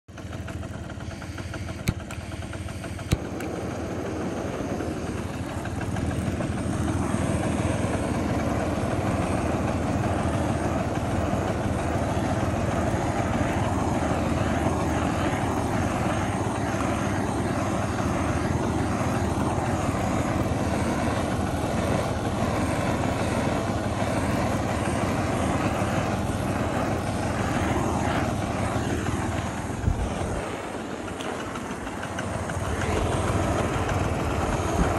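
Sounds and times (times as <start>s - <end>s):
butane torch flame hissing: 0.1s - 34.9s
sharp clicks: 1.3s - 3.7s.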